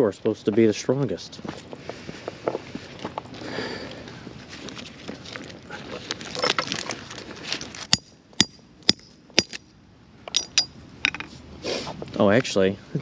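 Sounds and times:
steel chain jangling: 6.2 - 8.0.

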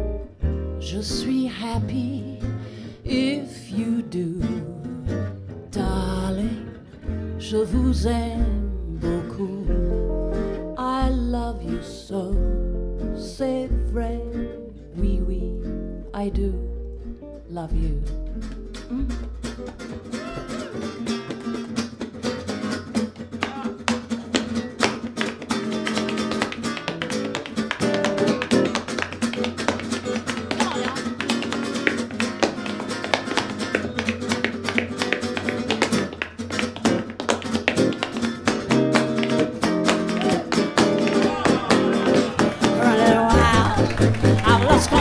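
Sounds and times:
double bass: 0.0 - 21.4, 40.8 - 45.0
acoustic guitars strumming: 0.0 - 45.0
tap dancing feet: 18.5 - 45.0.

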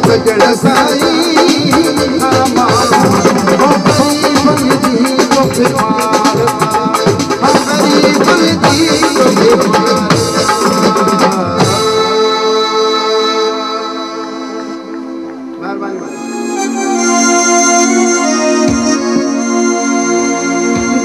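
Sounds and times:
loud music with percussion and drums: 0.0 - 12.3, 18.0 - 21.0.

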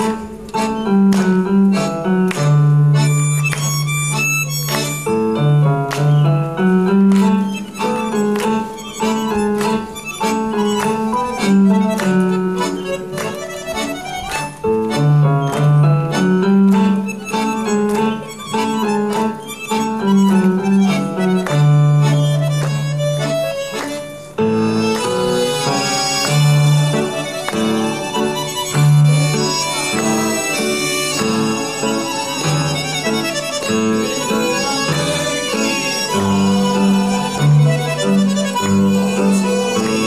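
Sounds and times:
accordion orchestra playing: 0.0 - 40.0.

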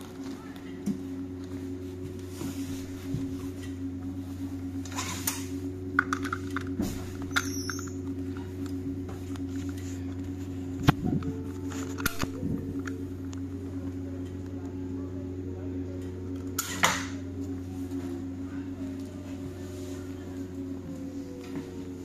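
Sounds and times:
bus interior hum: 0.0 - 22.0.

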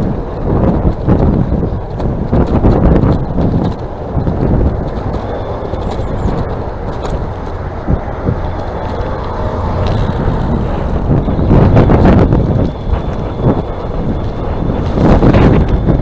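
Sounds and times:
bicycle tyre and road noise: 0.0 - 16.0
wind buffeting microphone: 0.0 - 16.0.

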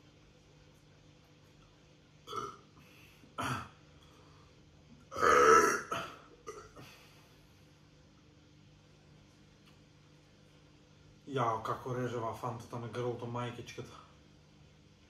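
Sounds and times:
man burping: 2.2 - 3.8, 5.1 - 7.0.

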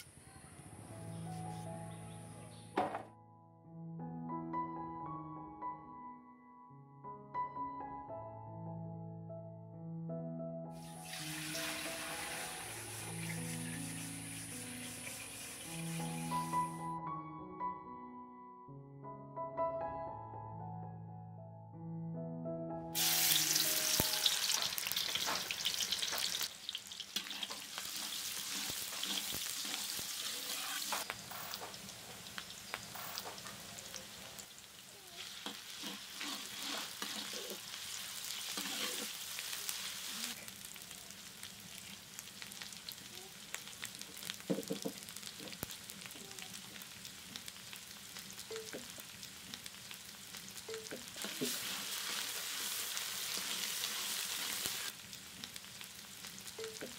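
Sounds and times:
onions sizzling in hot oil: 10.8 - 16.9, 23.0 - 56.9
metal spatula scraping and stirring: 27.2 - 31.1, 35.2 - 39.2.

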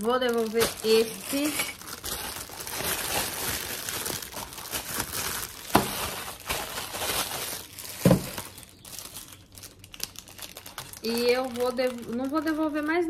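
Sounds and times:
plastic film crinkling: 0.0 - 13.0.

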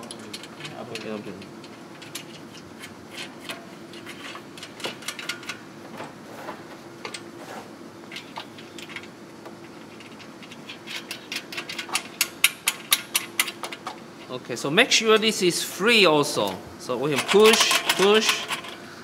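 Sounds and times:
metal hardware clicking and clinking: 0.0 - 5.6, 8.1 - 14.3, 16.4 - 18.8
faint steady hum: 0.0 - 19.0.

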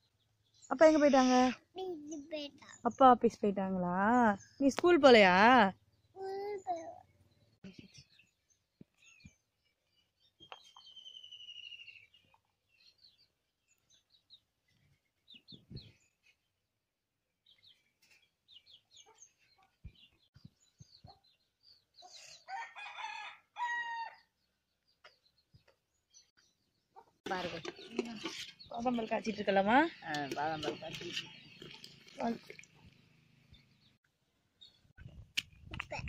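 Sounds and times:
small birds chirping: 0.0 - 36.0
rooster crowing: 22.5 - 24.2.

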